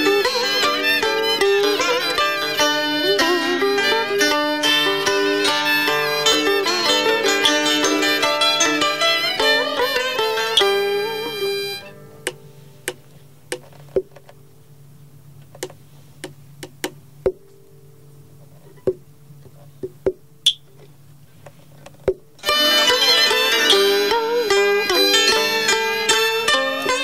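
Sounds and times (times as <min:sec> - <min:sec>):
string and flute ensemble: 0:00.0 - 0:12.0, 0:22.4 - 0:27.0
single plucked notes: 0:00.0 - 0:14.2, 0:15.6 - 0:19.1.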